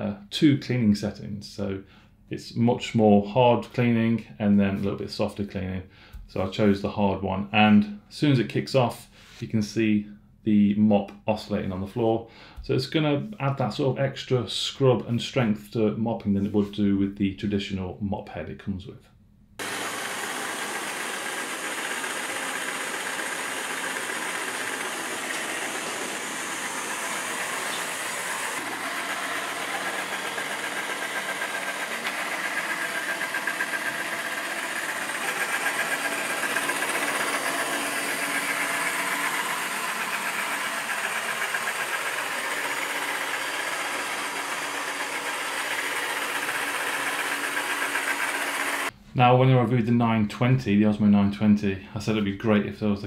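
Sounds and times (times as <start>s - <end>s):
mop vibrating buzz: 19.6s - 48.9s
robot vacuum whirring: 19.6s - 48.9s.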